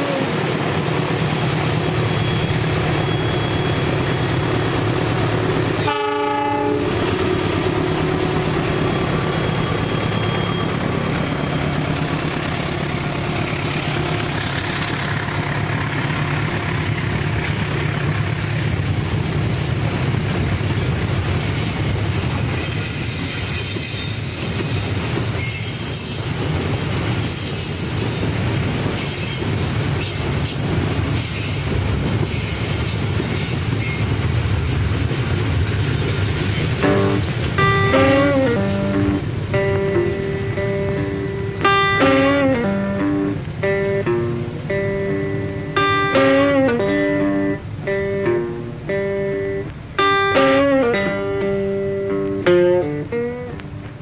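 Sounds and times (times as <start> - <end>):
diesel locomotive engine running: 0.0 - 54.0
high wheel squeals: 1.3 - 5.2, 7.5 - 14.4, 17.7 - 20.0, 21.6 - 26.6, 36.4 - 43.1
train horn blast: 5.8 - 7.4, 36.8 - 52.4
train wheels clacking on rail joints: 6.9 - 54.0.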